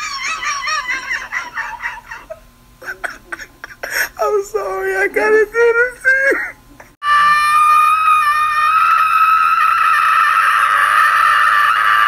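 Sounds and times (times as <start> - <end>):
person screaming: 7.0 - 12.0.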